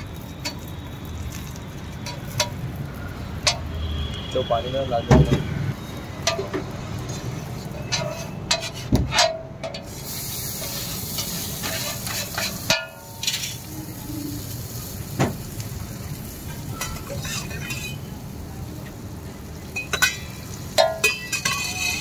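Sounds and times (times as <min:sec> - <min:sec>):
food sizzling: 0:00.0 - 0:04.2, 0:05.7 - 0:08.8, 0:09.6 - 0:22.0
metal scraper scraping griddle: 0:11.2 - 0:13.6, 0:21.1 - 0:22.0.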